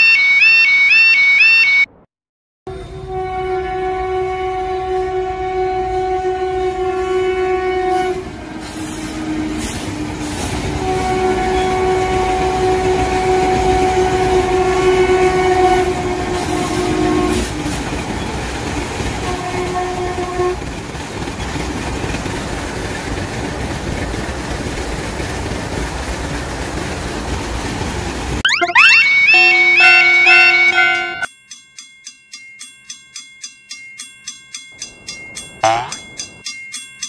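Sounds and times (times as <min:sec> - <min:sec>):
train horn blasts: 0:02.7 - 0:10.0, 0:10.6 - 0:17.7, 0:19.2 - 0:20.7, 0:29.2 - 0:31.3
train rumbling along track: 0:02.7 - 0:28.4.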